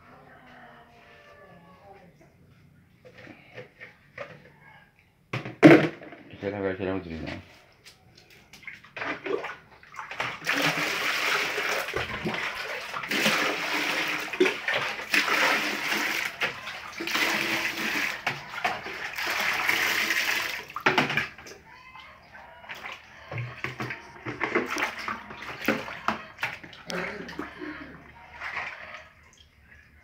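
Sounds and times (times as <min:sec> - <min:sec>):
water splashing: 0:08.4 - 0:30.0
water poured into a basin: 0:08.6 - 0:21.5.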